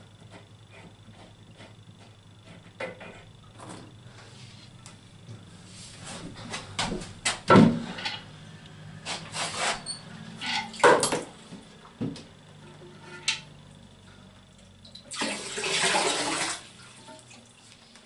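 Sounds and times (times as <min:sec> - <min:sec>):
water pouring into toilet bowl: 0:15.1 - 0:16.8.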